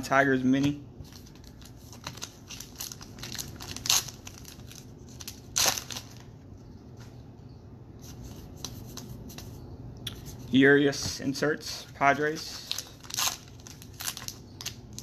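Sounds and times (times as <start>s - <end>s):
card wrappers crinkling: 1.0s - 6.4s, 12.2s - 15.0s.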